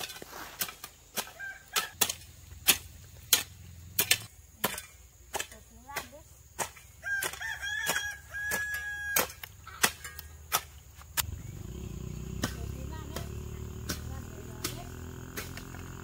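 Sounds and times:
rooster crowing: 1.3 - 2.0, 7.0 - 9.5
sharp chopping knocks: 12.4 - 15.9.

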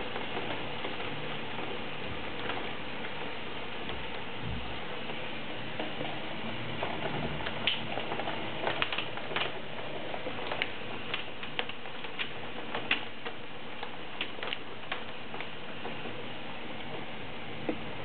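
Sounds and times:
hailstones ticking on hard surface: 0.0 - 18.0
heavy rain hissing: 0.0 - 18.0.

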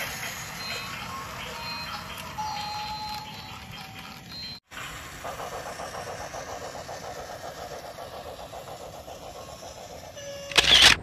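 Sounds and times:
toy train motor whirring: 0.0 - 4.6
train wheels clattering on track: 4.8 - 10.9.

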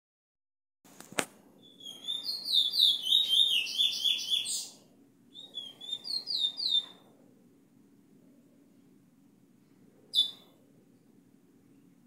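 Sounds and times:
bullfinch whistled song: 1.6 - 7.0, 10.1 - 10.5.

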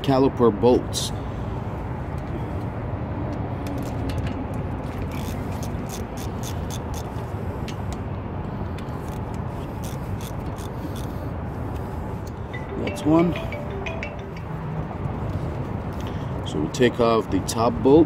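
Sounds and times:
hand ratchet clicking: 5.1 - 7.1, 9.0 - 11.1.

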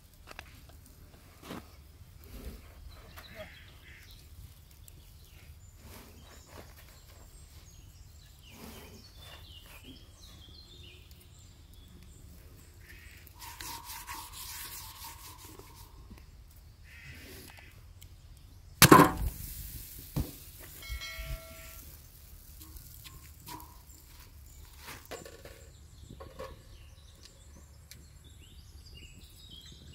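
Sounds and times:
small birds chirping: 0.8 - 18.8, 20.2 - 29.9
sharp loud knock: 18.8 - 19.4.

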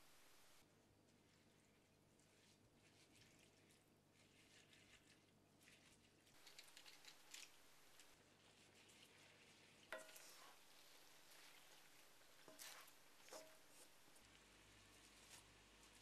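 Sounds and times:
food crackling in a pot: 2.6 - 16.0
wooden spatula touches: 9.9 - 16.0.

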